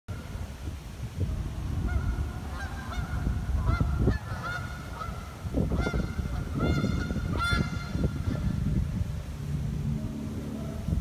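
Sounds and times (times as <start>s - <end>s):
steady low rumble: 0.1s - 11.0s
geese honking in flight: 1.8s - 8.6s.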